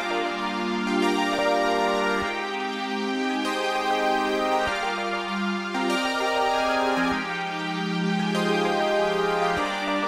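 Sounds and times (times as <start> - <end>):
slow background music: 0.0 - 10.0.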